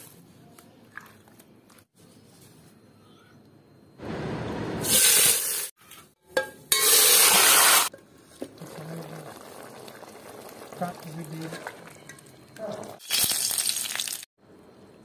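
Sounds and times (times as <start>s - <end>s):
meat sizzling in hot oil: 13.0s - 14.3s.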